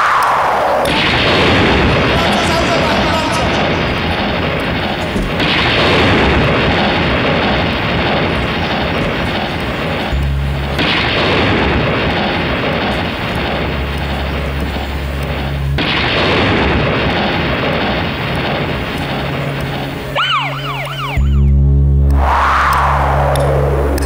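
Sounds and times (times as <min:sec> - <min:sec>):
loud rushing noise: 0:00.0 - 0:13.9
low held drone: 0:00.0 - 0:24.0
siren-like whoops: 0:20.2 - 0:24.0.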